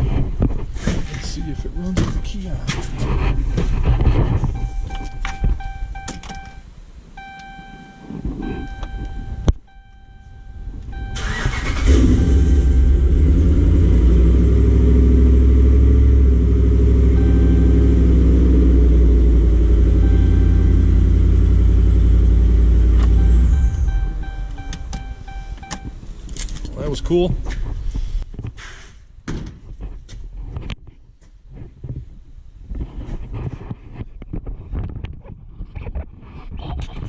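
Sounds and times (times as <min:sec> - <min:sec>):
dashboard chime: 0:01.2 - 0:02.7, 0:04.5 - 0:06.6, 0:07.2 - 0:11.3, 0:17.1 - 0:18.4, 0:19.9 - 0:21.4, 0:23.2 - 0:26.0
engine cranking and idling: 0:08.3 - 0:27.3.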